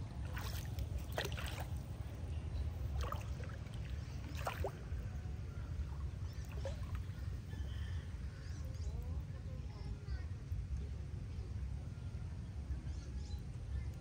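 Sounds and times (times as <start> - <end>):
water sloshing and splashing: 0.0 - 7.5
steady low rumble: 0.0 - 14.0.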